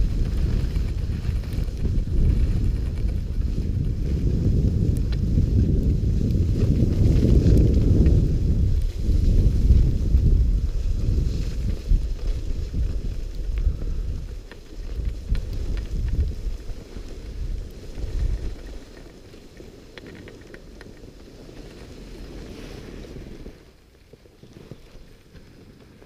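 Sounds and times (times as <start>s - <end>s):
wind buffeting microphone: 0.0s - 19.4s
skis sliding on snow: 0.0s - 26.0s.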